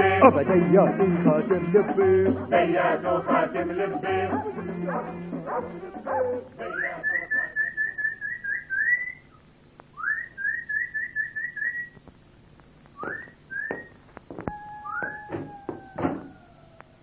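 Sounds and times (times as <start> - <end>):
person whistling: 10.0 - 12.0, 13.0 - 13.9, 14.5 - 16.3.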